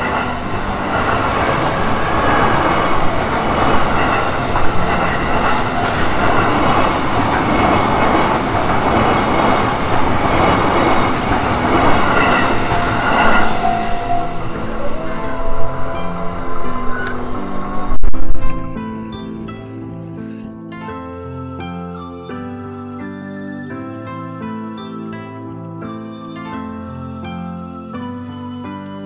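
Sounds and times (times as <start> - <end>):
train wheels clacking on rails: 0.0 - 16.4.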